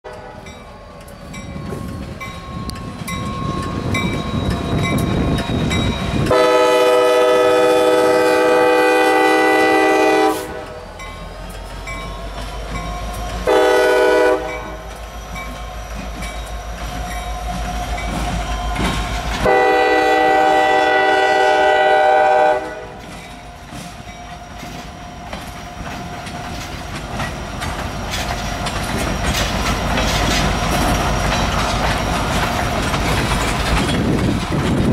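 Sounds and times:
crossing bell ringing: 0.1 - 6.7, 10.9 - 19.9
locomotive rumble: 0.1 - 34.9
train air horn blasts: 6.3 - 10.8, 13.4 - 14.9, 19.4 - 23.0
wheels clickety-clack: 11.1 - 20.8, 22.5 - 34.9.

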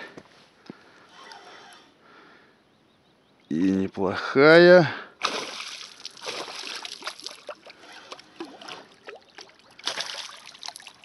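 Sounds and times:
fish thrashing and splashing: 5.2 - 11.0.

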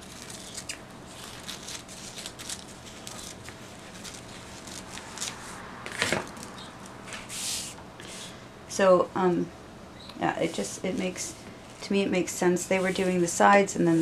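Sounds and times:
hand brushing over paper: 7.1 - 8.3, 12.5 - 14.0.

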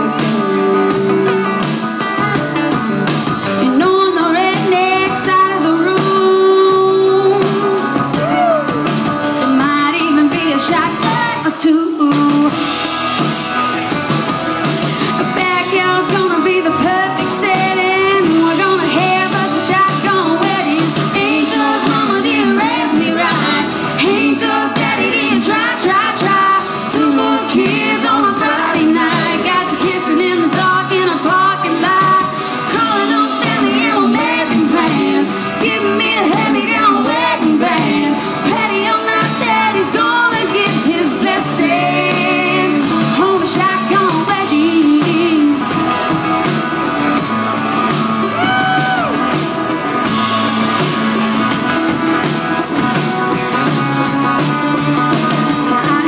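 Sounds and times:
live band with guitar and drums: 0.0 - 56.0
woman singing into a microphone: 3.5 - 8.7, 9.3 - 12.8, 15.2 - 46.8, 55.4 - 56.0.

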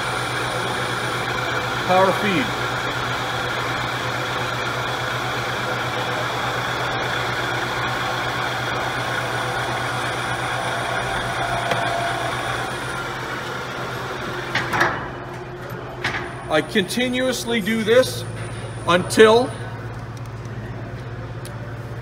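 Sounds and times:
metal lathe humming: 0.0 - 14.6
low motor drone: 8.7 - 15.2.

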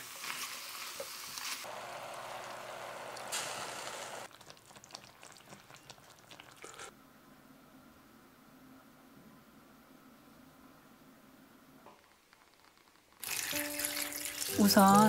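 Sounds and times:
ribs sizzling in a pot: 0.0 - 6.9, 12.1 - 15.0
stew simmering with popping: 0.0 - 6.9, 11.8 - 15.0.

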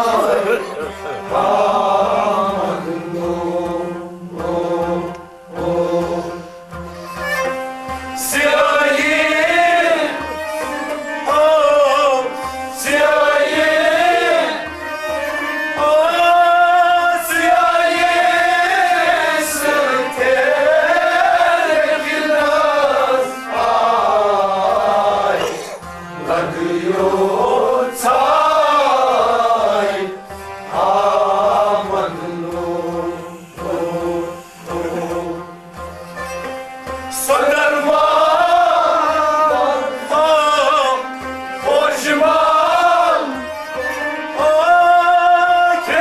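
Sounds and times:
man singing: 0.0 - 6.6, 8.1 - 14.8, 15.4 - 35.6, 37.1 - 46.0
instrumental accompaniment: 0.0 - 46.0
hand drum beat: 24.7 - 26.9.

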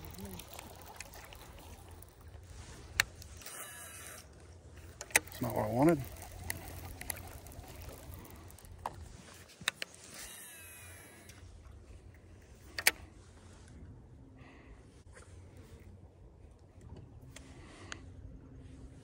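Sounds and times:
fishing tackle clicks: 0.0 - 11.4
fishing reel whirring: 0.0 - 11.5
boat motor humming: 0.0 - 11.8.

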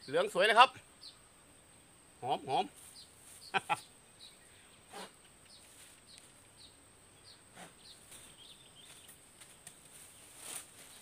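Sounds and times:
small bird chirping: 1.0 - 1.2, 2.8 - 11.0
soft rustles: 5.6 - 6.4, 8.0 - 11.0.

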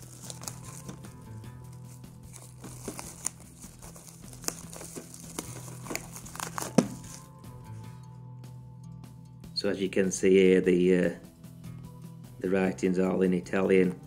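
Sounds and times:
plastic wrapping crinkling: 0.0 - 1.1, 1.7 - 7.3.

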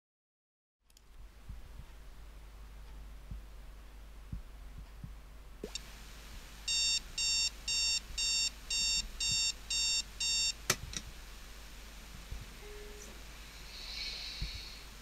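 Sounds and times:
speaker hiss: 4.2 - 15.0
electronic alarm beeps: 6.7 - 10.6.

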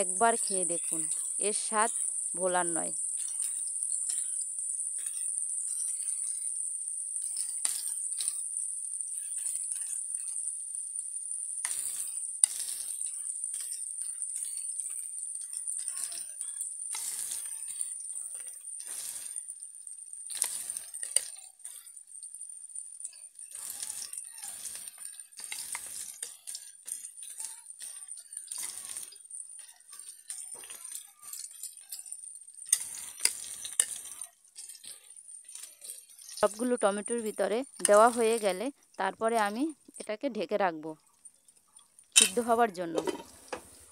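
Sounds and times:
oil sizzling in a frying pan: 0.0 - 43.9
metal spoon clicking and scraping: 3.0 - 36.7, 37.7 - 38.4, 41.1 - 43.6
sharp metal clinks: 42.2 - 43.5.

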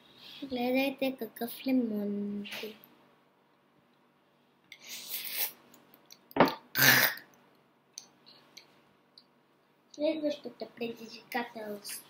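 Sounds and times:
child slurping lemon: 4.8 - 5.6.

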